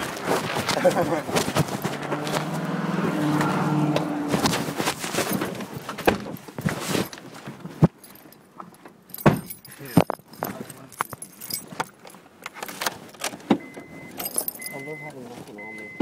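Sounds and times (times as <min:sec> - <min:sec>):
rustling: 0:00.0 - 0:13.5
keys jangling: 0:07.9 - 0:13.3, 0:14.1 - 0:14.8.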